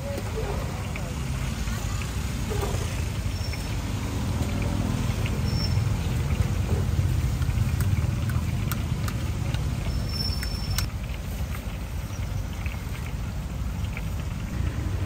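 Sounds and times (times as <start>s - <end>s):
oil sizzling while deep-frying: 0.0s - 15.0s
sharp ticks: 7.1s - 11.2s.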